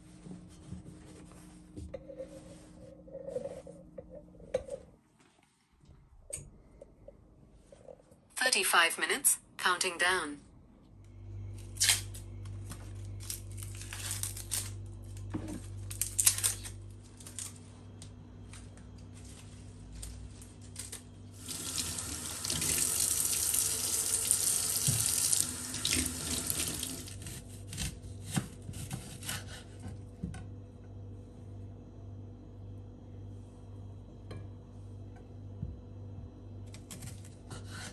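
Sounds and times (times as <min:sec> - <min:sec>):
onion skin crackling and tearing: 0:11.6 - 0:12.2, 0:13.0 - 0:18.0, 0:36.7 - 0:37.4.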